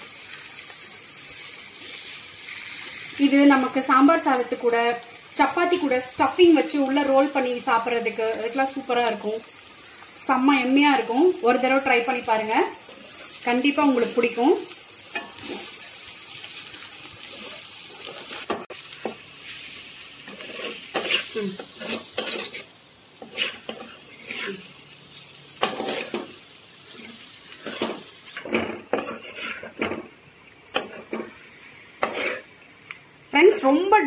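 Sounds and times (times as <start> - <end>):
light sizzle: 0.0 - 34.0
metal spatula scraping a pan: 15.1 - 16.0, 20.2 - 24.6, 25.6 - 26.3, 27.0 - 30.1, 30.7 - 32.5.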